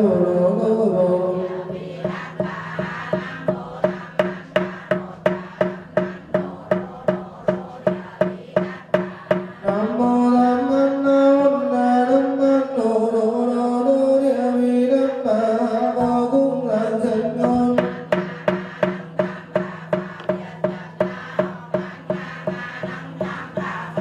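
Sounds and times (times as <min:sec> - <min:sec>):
voices chanting: 0:00.0 - 0:12.8, 0:15.8 - 0:24.0
wooden fish steady beat: 0:01.5 - 0:10.0, 0:17.4 - 0:24.0.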